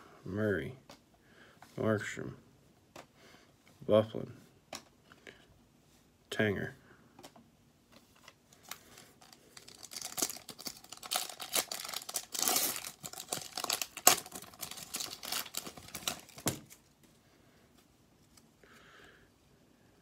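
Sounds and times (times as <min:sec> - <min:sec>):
foil wrapper tearing and crinkling: 0:08.6 - 0:16.8.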